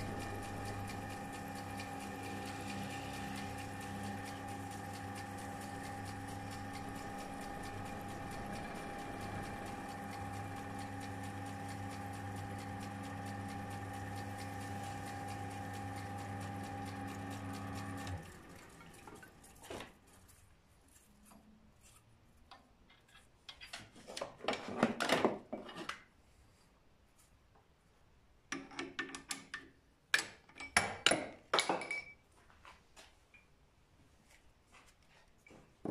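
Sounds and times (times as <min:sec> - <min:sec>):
wood lathe humming: 0:00.0 - 0:20.0
rustling handling: 0:19.6 - 0:22.1.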